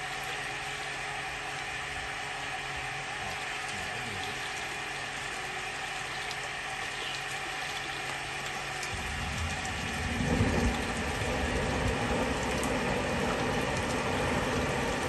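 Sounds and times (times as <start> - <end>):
water gushing onto concrete: 0.0 - 15.0
low rumble: 8.9 - 15.0.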